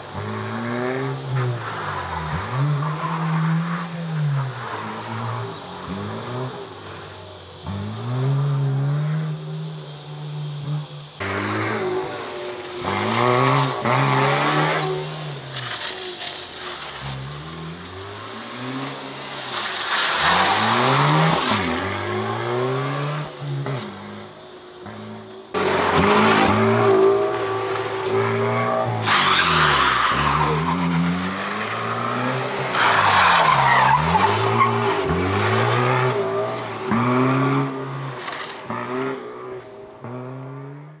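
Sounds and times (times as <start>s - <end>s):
car engine revving: 0.0s - 41.0s
tyres squealing: 23.5s - 38.8s.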